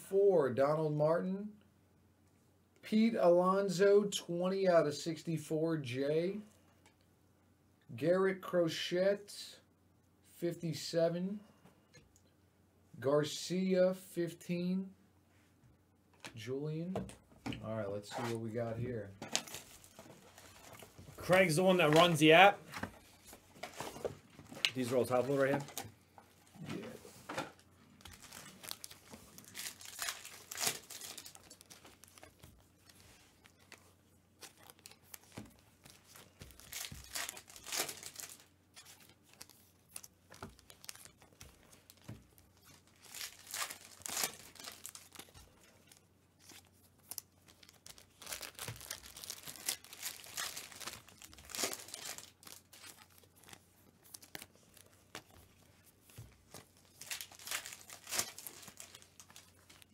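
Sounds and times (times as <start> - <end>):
foil wrappers crinkling and tearing: 19.2 - 22.6, 28.0 - 59.9.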